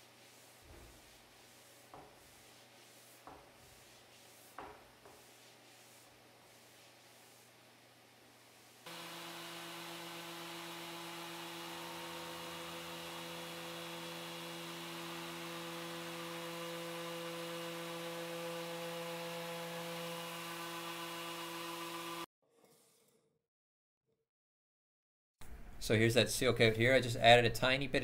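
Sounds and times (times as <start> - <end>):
orbital sander on wood: 8.8 - 22.3.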